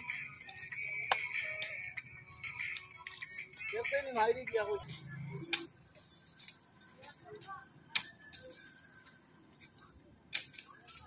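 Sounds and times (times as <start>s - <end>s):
bamboo cracking: 5.4s - 6.6s, 7.9s - 11.0s.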